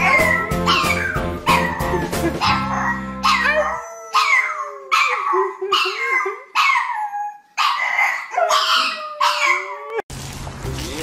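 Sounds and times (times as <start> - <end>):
dog howling: 0.0 - 6.2, 8.3 - 10.1.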